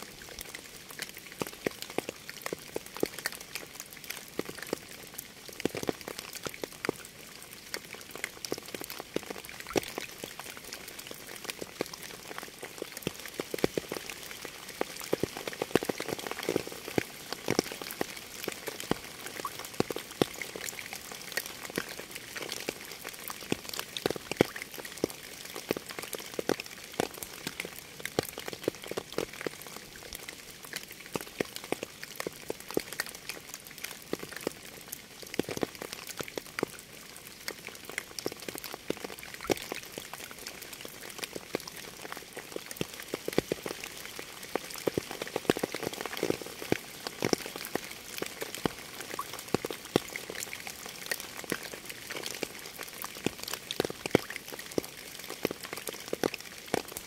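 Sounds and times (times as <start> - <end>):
raindrops ticking: 0.2 - 57.0.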